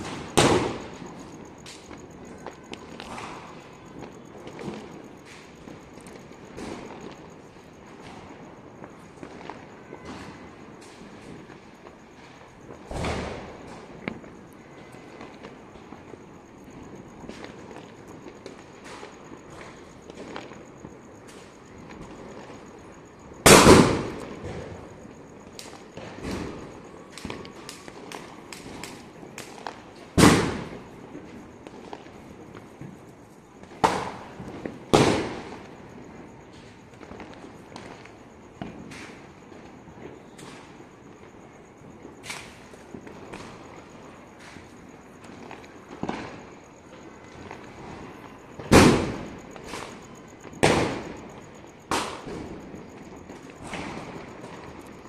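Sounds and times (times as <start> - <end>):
firecracker bangs with echo: 0.0 - 3.7, 12.8 - 13.9, 23.4 - 25.0, 26.0 - 30.9, 33.8 - 35.6, 47.8 - 51.3, 51.9 - 52.6
loud firework bangs: 0.0 - 38.0, 42.1 - 46.6, 47.2 - 54.9
firecrackers popping and crackling: 0.0 - 55.0.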